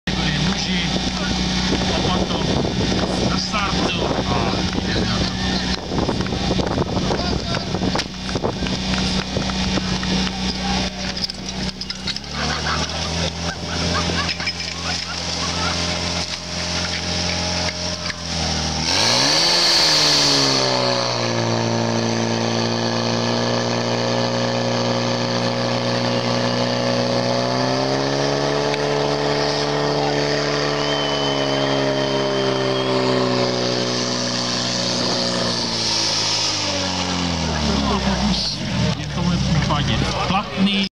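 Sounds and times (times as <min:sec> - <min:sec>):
pump engine revving: 0:00.1 - 0:40.9
hissing rush: 0:28.1 - 0:38.9.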